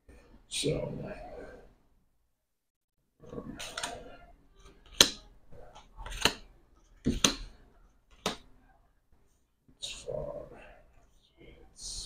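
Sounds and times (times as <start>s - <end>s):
cards rustling: 3.4s - 8.4s
cards slapping on table: 4.9s - 5.2s, 5.8s - 6.4s, 7.0s - 7.5s, 8.1s - 8.5s.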